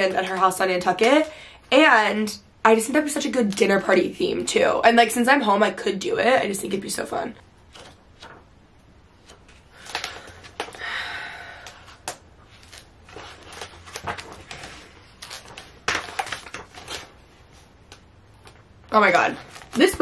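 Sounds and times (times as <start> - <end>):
book pages flipping: 7.6 - 8.5, 9.2 - 10.8, 11.6 - 20.0.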